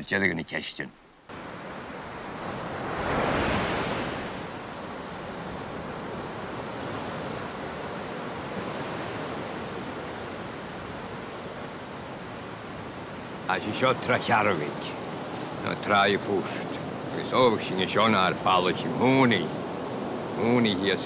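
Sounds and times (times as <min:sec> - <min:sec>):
wave breaking: 0:01.4 - 0:11.2.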